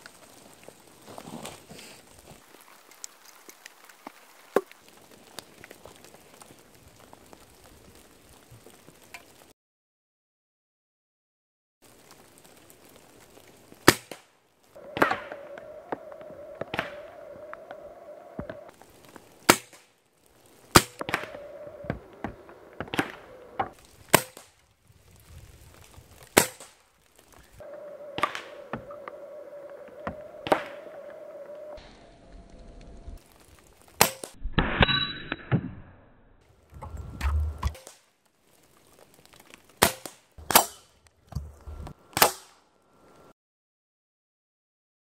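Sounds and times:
pellets hitting targets: 0:14.9 - 0:15.5, 0:19.4 - 0:19.9, 0:20.7 - 0:24.6, 0:26.3 - 0:26.8, 0:39.8 - 0:40.9.

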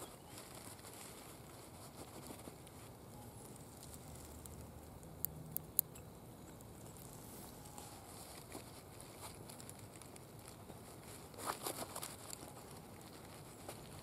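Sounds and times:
canvas tool roll rustling: 0:00.0 - 0:03.0.

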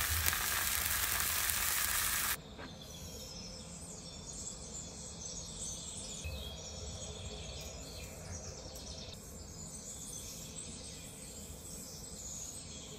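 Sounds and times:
insects trilling: 0:00.0 - 0:02.4.

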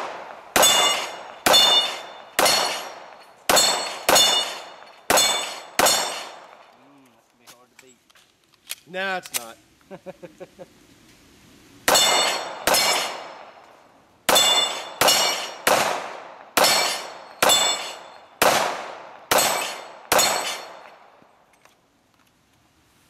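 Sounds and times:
metallic clang of steel targets: 0:00.0 - 0:06.6, 0:11.9 - 0:13.5, 0:14.3 - 0:15.8, 0:16.6 - 0:18.6, 0:19.3 - 0:21.6
pistol shots: 0:00.0 - 0:06.6, 0:11.9 - 0:13.6, 0:14.3 - 0:21.1.

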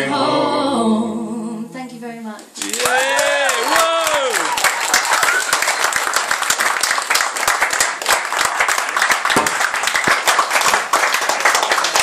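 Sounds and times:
audience applause: 0:02.6 - 0:12.0.

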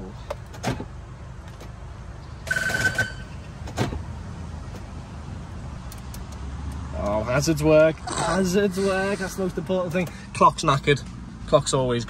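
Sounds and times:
sharp clicks: 0:05.8 - 0:07.2.

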